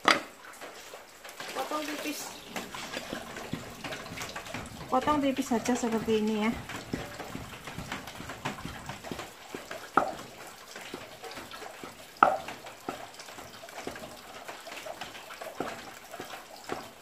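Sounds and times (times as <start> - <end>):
tap running into steel sink: 2.6 - 14.2
cleaver knocking on chopping block: 3.0 - 10.3, 12.2 - 13.1.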